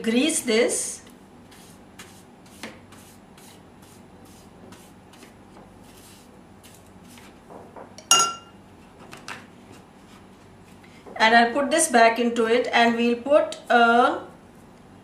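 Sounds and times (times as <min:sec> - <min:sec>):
pastry brush stroking paper: 0:01.5 - 0:07.3
brush clinking in glass: 0:08.0 - 0:08.5.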